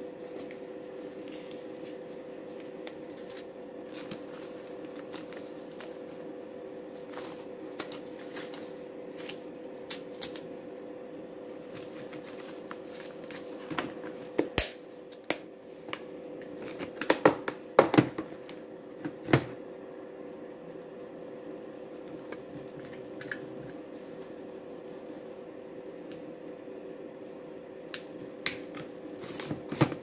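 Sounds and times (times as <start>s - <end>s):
paper packets rustling: 0.3s - 6.3s, 6.9s - 10.5s, 11.6s - 14.4s.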